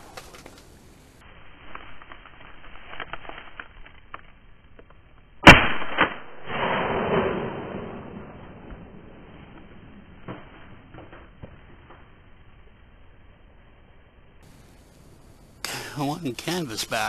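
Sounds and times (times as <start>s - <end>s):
shotgun shot: 5.4s - 9.0s.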